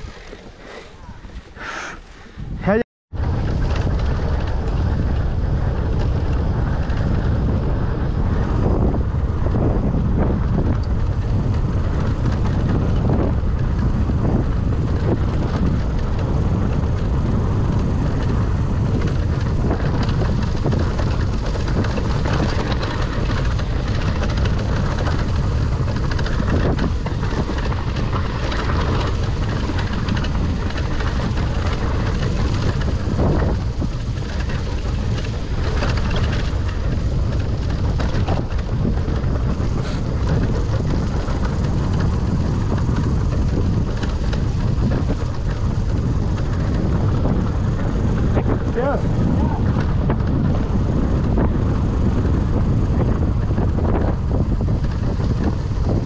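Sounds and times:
bike knocking and rattling: 0.0s - 56.0s
wind buffeting microphone: 0.0s - 56.0s
tyre rumble on dirt: 24.1s - 53.5s.

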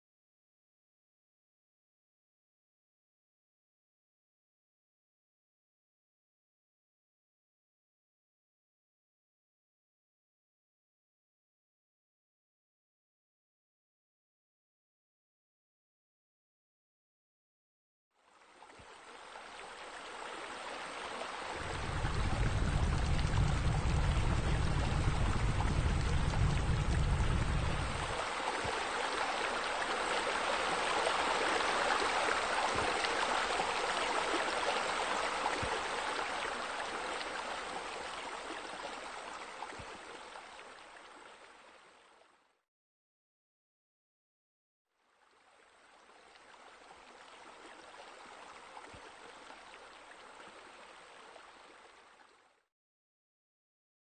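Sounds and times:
water rushing and splashing: 18.3s - 42.2s
deep low rumble: 21.6s - 28.2s.

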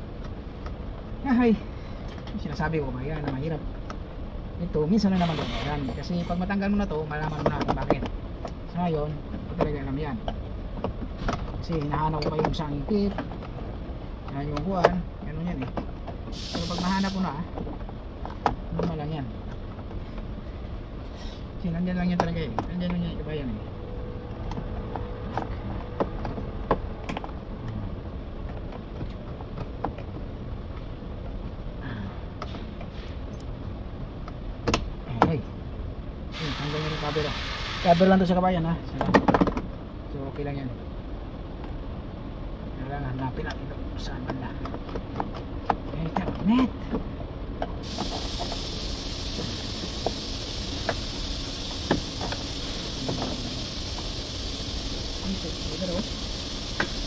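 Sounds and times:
steady hiss: 16.3s - 17.4s, 36.3s - 38.5s, 47.8s - 57.0s.

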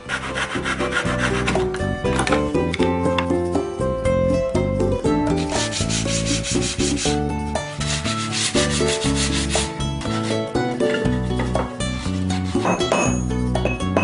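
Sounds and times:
hand sanding wood block: 0.0s - 1.7s, 5.3s - 10.5s
background music: 0.0s - 14.0s.

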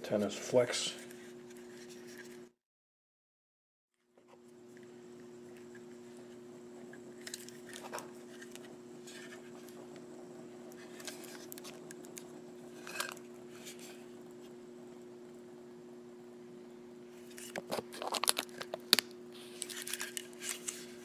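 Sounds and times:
steady low hum: 4.0s - 21.0s
plastic packaging rustling: 17.2s - 21.0s.

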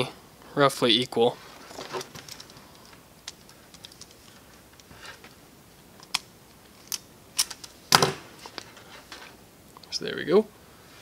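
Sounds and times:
wire stripper clicking and snapping: 3.2s - 4.2s, 6.0s - 8.0s.

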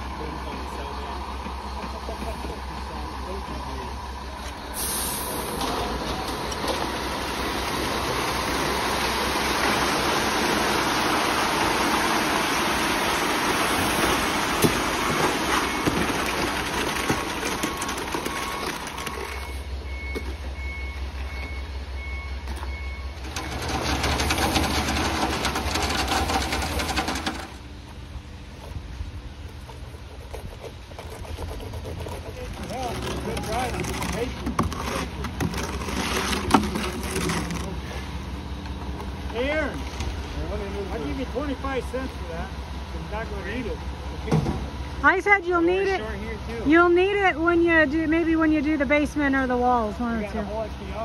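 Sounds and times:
concrete truck running: 0.0s - 51.0s
concrete pouring down chute: 4.7s - 19.7s, 23.2s - 27.5s, 32.4s - 38.3s
reversing alarm beeping: 15.5s - 23.3s.

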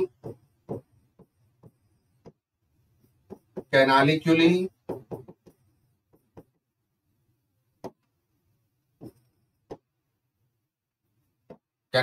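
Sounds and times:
marker pen tapping on board: 0.0s - 3.9s, 4.7s - 6.8s, 7.8s - 8.1s, 9.0s - 10.0s, 11.4s - 11.8s.

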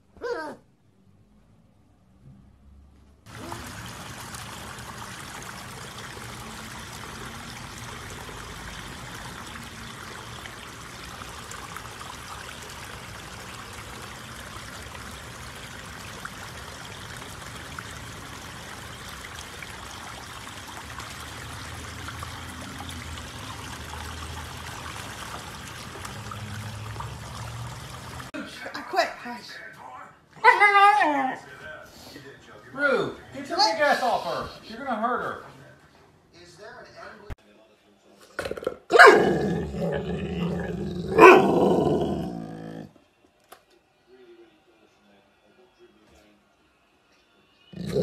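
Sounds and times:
water running over rocks: 3.3s - 28.3s.

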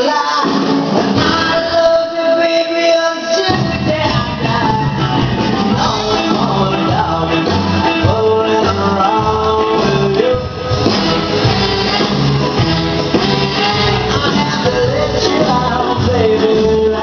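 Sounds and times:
guitar: 0.0s - 17.0s
person singing: 0.0s - 17.0s
steady bass beat: 3.5s - 16.9s.

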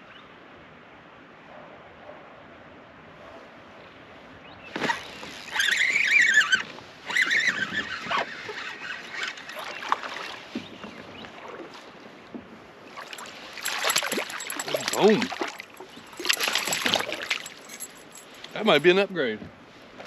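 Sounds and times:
fishing reel retrieving: 4.8s - 10.1s
fish splashing: 8.0s - 10.5s, 12.9s - 18.4s.

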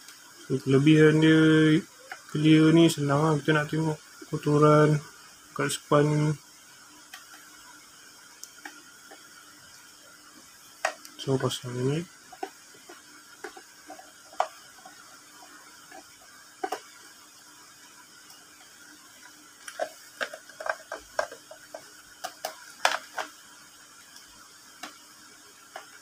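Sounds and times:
plastic parts clicking and snapping: 19.6s - 23.4s.

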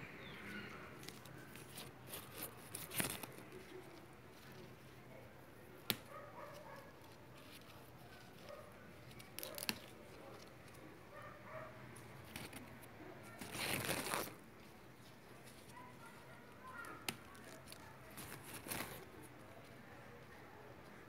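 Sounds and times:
fingers digging through soil: 1.0s - 4.9s, 12.2s - 14.4s, 15.4s - 19.2s.

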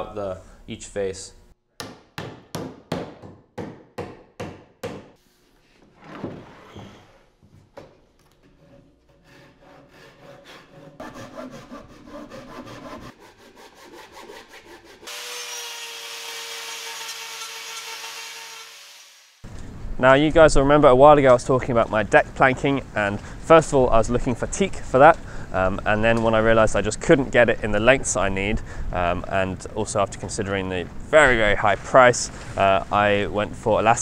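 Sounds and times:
mallet striking chisel: 1.8s - 5.1s
angle grinder cutting wood: 15.0s - 19.4s.

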